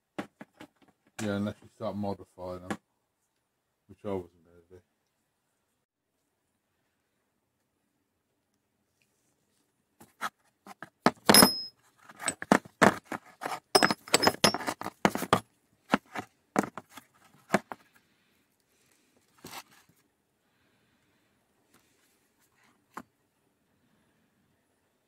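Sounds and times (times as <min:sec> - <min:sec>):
metal sockets clinking and knocking: 0:11.2 - 0:13.0, 0:13.7 - 0:15.2.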